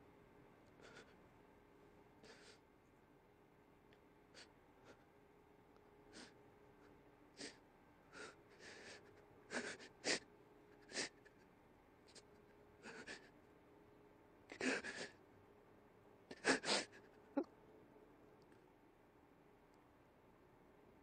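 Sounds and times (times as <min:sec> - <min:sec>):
man sniffing and sobbing: 0:08.2 - 0:11.4, 0:12.8 - 0:13.3, 0:16.3 - 0:17.1.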